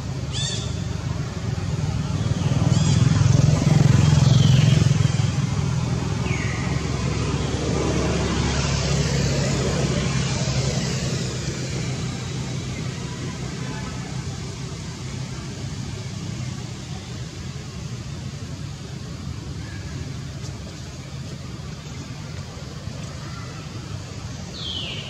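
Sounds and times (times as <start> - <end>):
vehicle engine humming: 0.0 - 25.0.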